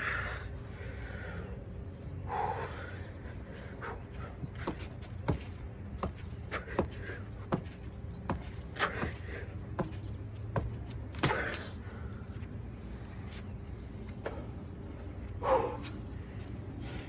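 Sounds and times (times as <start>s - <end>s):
trainers thudding on exercise mat: 4.6s - 11.5s.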